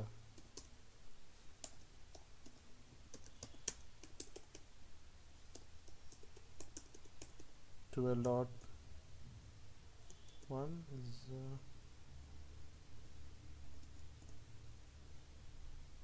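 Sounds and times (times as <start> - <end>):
faint low hum: 0.0 - 16.0
computer keyboard typing: 0.4 - 0.7, 1.6 - 4.7, 5.5 - 7.5, 13.8 - 14.4.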